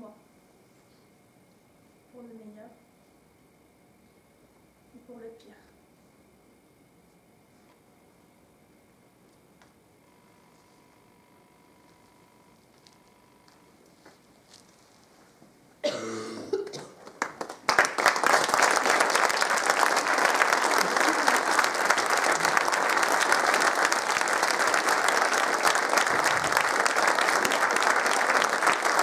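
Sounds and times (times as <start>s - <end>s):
audience applause: 17.0s - 29.0s.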